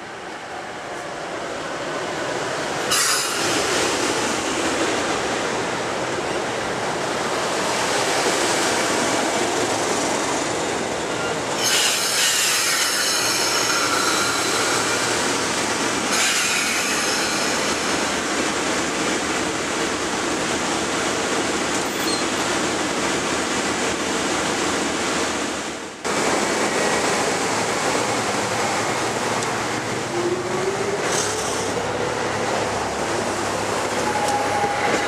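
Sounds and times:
train wheels rushing: 2.1 - 35.0
wheels and brakes squealing: 21.8 - 22.4.

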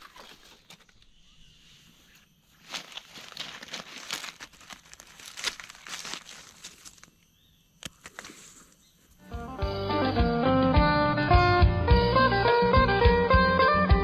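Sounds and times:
dry leaves crackling and rustling: 2.5 - 7.2
guitar music: 9.2 - 14.0.

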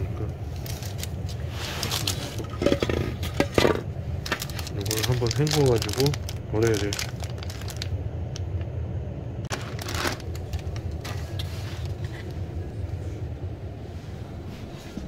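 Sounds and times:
steady low rumble: 0.0 - 15.0
plastic wrapping crinkling and tearing: 0.6 - 2.5, 4.2 - 8.0, 9.5 - 12.0.

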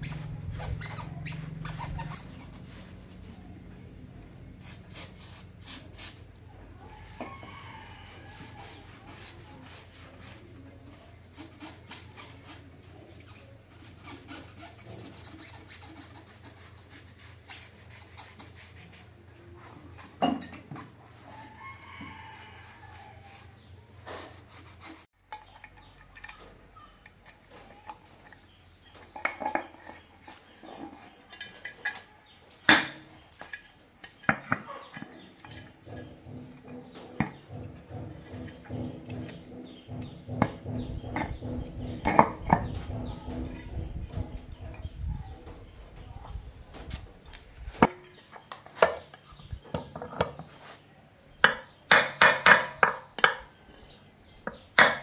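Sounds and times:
rag rubbing on bike wheel: 0.0 - 3.7, 4.5 - 25.1, 34.6 - 47.3.

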